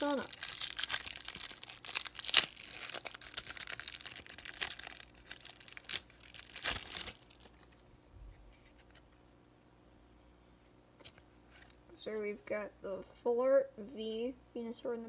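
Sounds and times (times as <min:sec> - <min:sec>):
plastic wrapper crinkling and tearing: 0:00.0 - 0:07.9.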